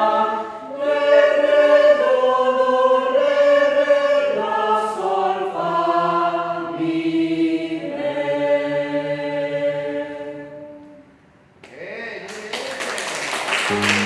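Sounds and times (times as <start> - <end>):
group singing a cappella: 0.0 - 11.1.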